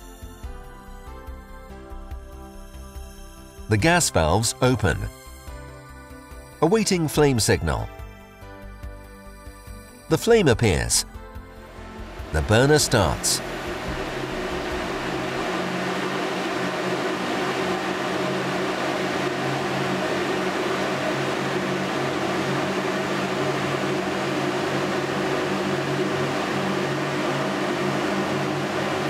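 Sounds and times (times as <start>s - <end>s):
fan low hum: 10.1s - 29.0s
gas burner rushing: 11.6s - 29.0s.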